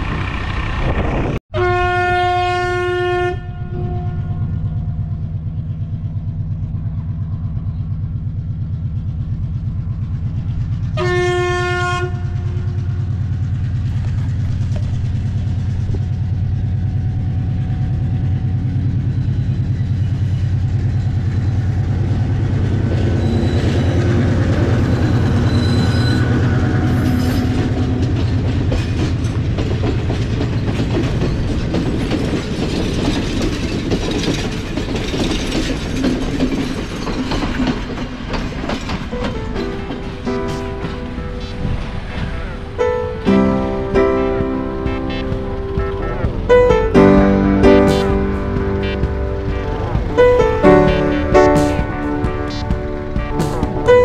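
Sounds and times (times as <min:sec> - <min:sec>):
train rumbling on rails: 0:00.0 - 0:54.0
train horn blast: 0:01.5 - 0:04.9, 0:10.9 - 0:13.2, 0:40.3 - 0:54.0.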